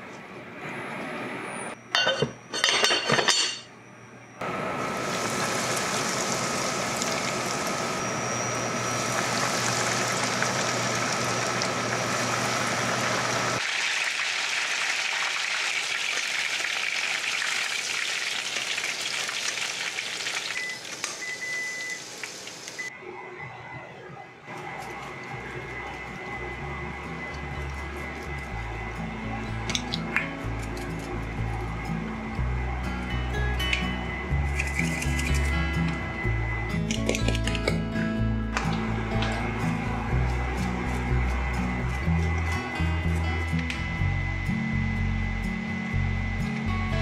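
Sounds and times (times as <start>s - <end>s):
utensils clinking against pot: 2.0s - 3.7s
hot oil sizzling: 4.9s - 22.9s.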